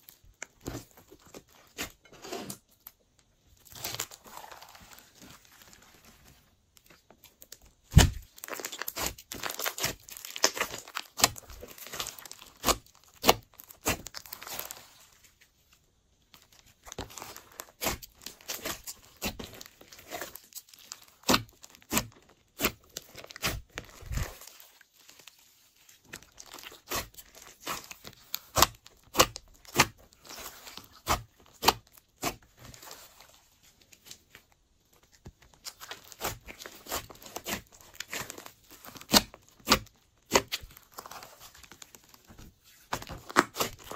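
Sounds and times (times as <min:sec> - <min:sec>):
slime popping and crackling: 0:07.4 - 0:15.0, 0:16.4 - 0:24.6, 0:26.1 - 0:33.1, 0:35.3 - 0:43.9.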